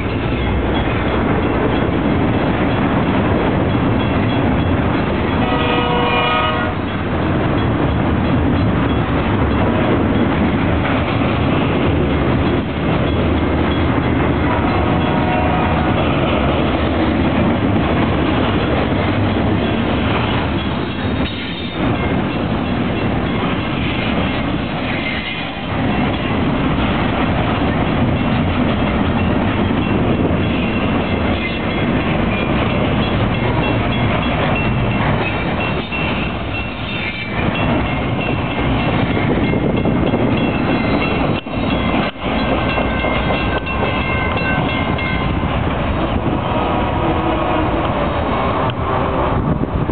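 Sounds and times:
freight train wheels clattering on rails: 0.0s - 49.9s.

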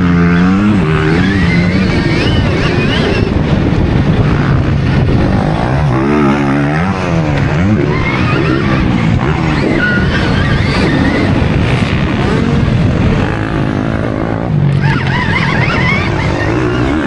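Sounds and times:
wind and drivetrain rush: 0.0s - 17.0s.

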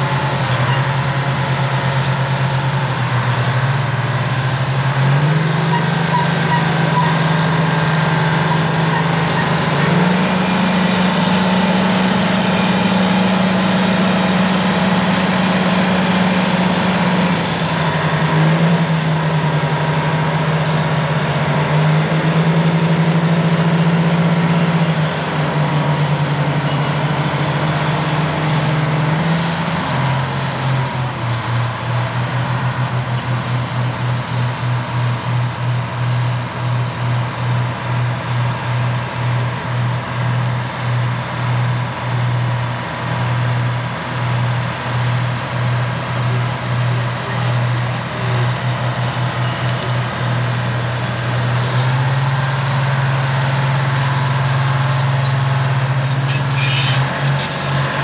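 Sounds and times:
diesel engines running: 0.0s - 58.0s.

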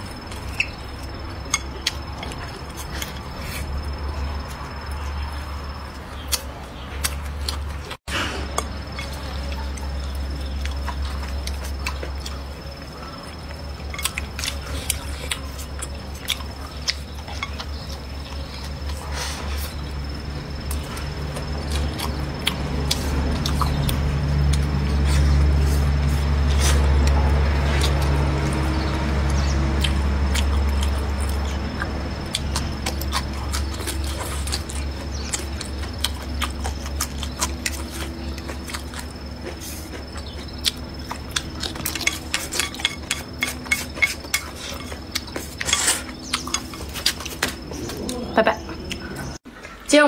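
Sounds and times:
low hum: 0.0s - 49.4s
chewing and mouth noises: 0.0s - 49.8s.

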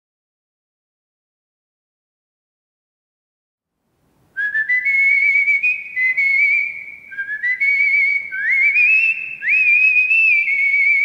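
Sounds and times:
man whistling a slow air: 4.4s - 11.0s.

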